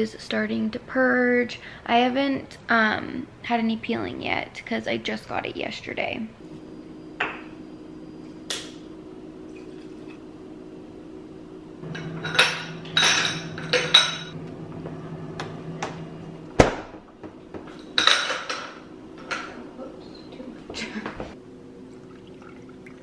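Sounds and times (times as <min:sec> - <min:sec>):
low hum: 0:06.3 - 0:20.6
glassware and dishes clinking: 0:12.0 - 0:14.4, 0:17.7 - 0:19.6.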